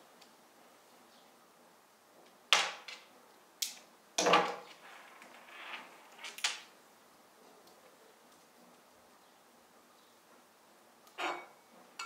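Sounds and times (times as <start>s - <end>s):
objects knocking and clattering: 4.2s - 6.6s.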